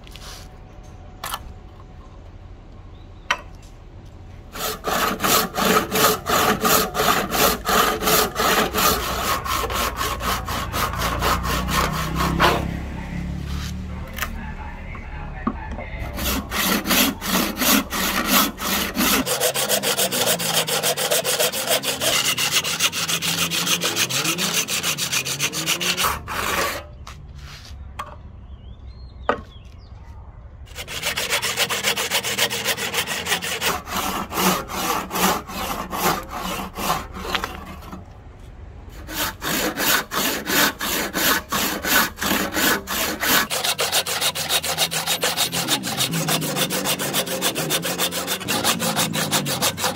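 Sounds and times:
hand saw cutting wood: 4.5s - 13.8s, 16.0s - 26.9s, 30.7s - 38.1s, 38.9s - 49.9s.

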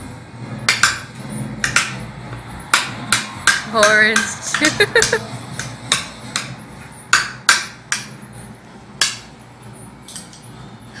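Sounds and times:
sharp hard knocks: 2.7s - 4.3s, 7.1s - 8.1s.

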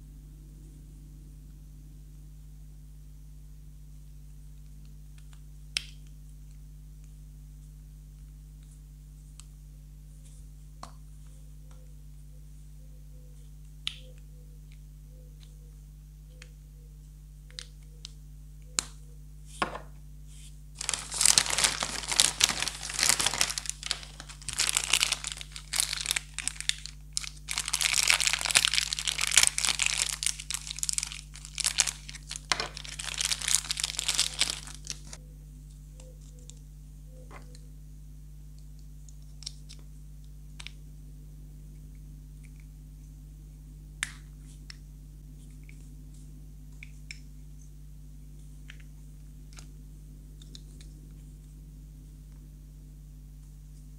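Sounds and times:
foil bag crinkling: 20.8s - 35.2s.

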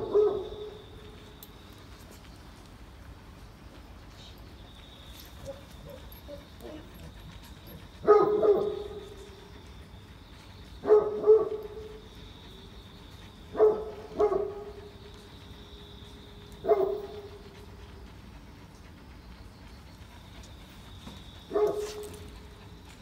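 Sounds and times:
dog barking in deep woofs: 8.0s - 9.0s, 10.8s - 11.9s, 13.5s - 14.8s.

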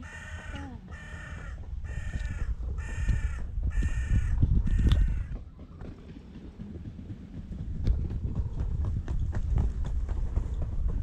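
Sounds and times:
crow cawing: 0.0s - 5.3s
low rumble and rustling: 0.0s - 11.0s.

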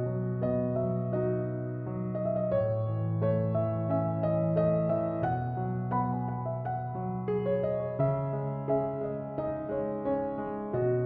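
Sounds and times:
slow piano-like keyboard melody: 0.0s - 11.0s.

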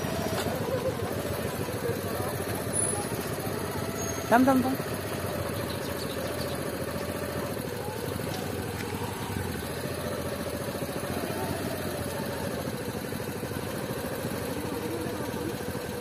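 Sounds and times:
motorcycle engine at low revs: 0.0s - 16.0s.

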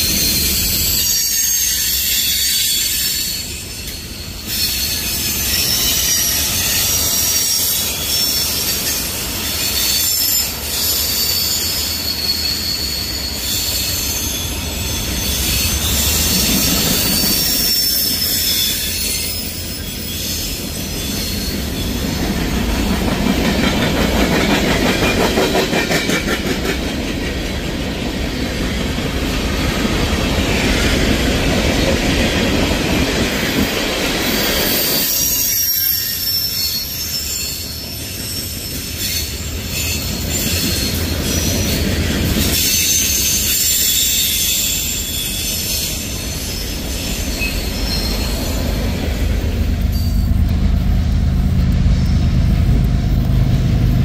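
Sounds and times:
high wheel squeal: 0.0s - 23.0s, 33.5s - 50.5s
freight train wheels rumbling on rail: 0.0s - 54.0s
rhythmic clicking of train wheels: 0.0s - 54.0s.

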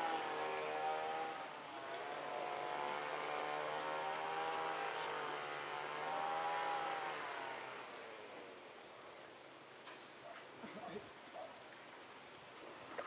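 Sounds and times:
engine running: 0.0s - 8.8s.

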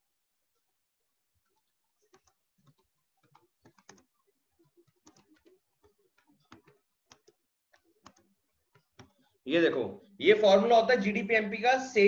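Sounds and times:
typing on computer keyboard: 2.1s - 4.1s, 4.8s - 9.2s.

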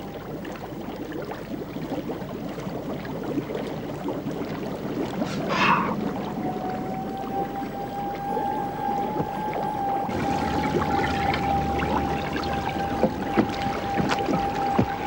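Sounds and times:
water lapping against boat hull: 0.0s - 15.0s.

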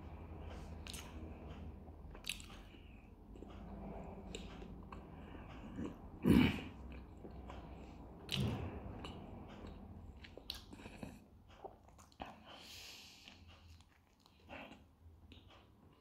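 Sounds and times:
man chewing: 0.4s - 16.0s
wet mouth clicks and smacks: 0.8s - 1.2s, 2.1s - 2.8s.

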